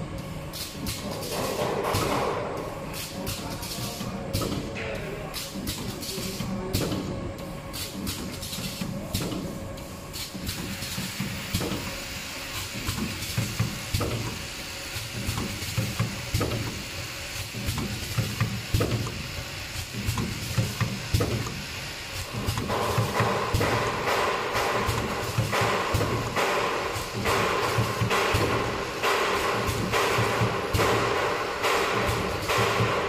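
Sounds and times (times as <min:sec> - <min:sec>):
machine clattering and hissing: 0:00.0 - 0:33.0
machine knocking: 0:00.8 - 0:07.2, 0:12.7 - 0:14.4, 0:15.0 - 0:16.8, 0:17.4 - 0:21.6, 0:22.2 - 0:33.0.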